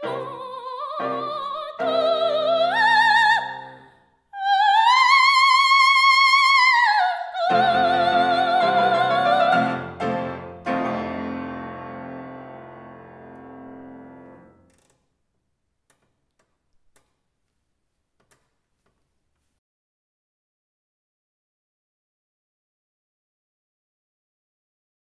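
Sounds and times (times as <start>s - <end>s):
operatic soprano singing: 0.0s - 10.0s
grand piano chords: 7.5s - 14.6s.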